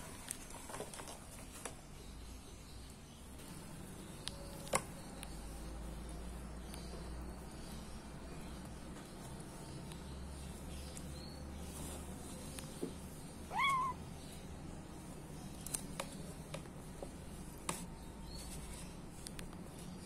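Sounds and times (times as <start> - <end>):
cat meowing: 13.5 - 14.0.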